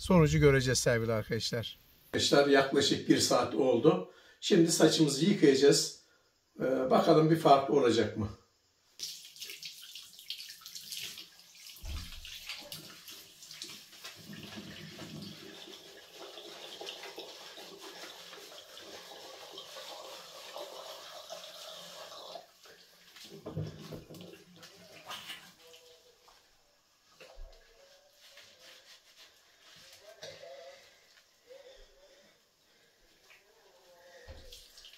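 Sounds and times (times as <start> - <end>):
water splashing into basin: 9.0 - 22.4, 34.3 - 34.9
tap running into a sink: 11.8 - 12.7.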